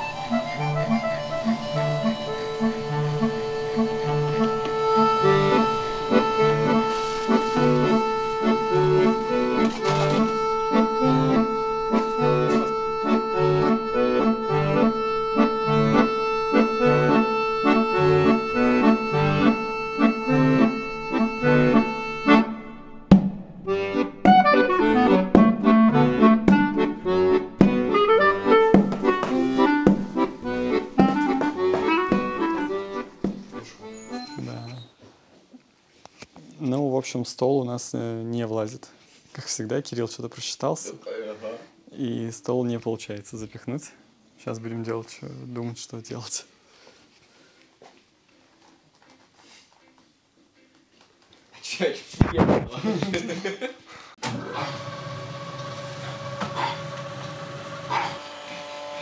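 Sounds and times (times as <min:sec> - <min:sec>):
background music with held chords: 0:00.0 - 0:34.6.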